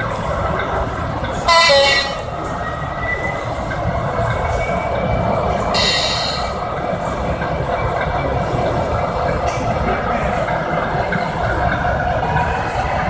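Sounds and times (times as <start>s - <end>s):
exhibition hall noise: 0.0s - 13.0s
shrill model train horn: 1.4s - 2.4s, 5.8s - 6.5s.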